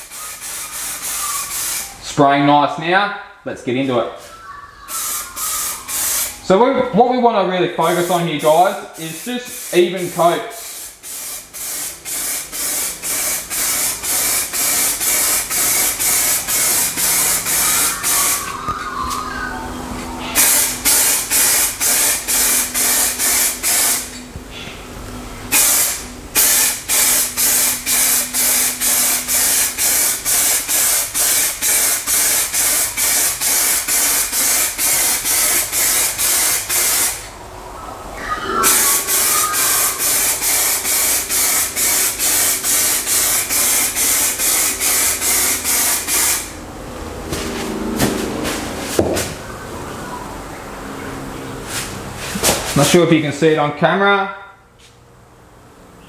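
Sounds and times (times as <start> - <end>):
aerosol spray can hissing: 0.0 - 2.0, 4.9 - 6.4, 7.8 - 18.6, 20.4 - 24.1, 25.5 - 37.2, 38.7 - 46.6.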